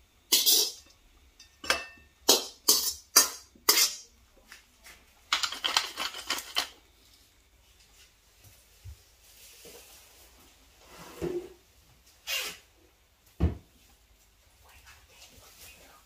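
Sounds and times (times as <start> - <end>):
pepper mill grinding: 0.3 - 0.8, 5.3 - 6.8
metal spatula scraping a wok: 0.3 - 0.9, 1.8 - 4.1.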